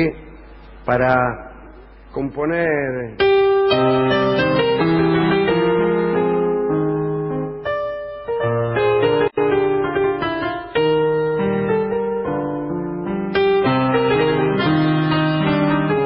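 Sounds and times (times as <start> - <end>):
piano playing slow chords: 3.2 - 16.0.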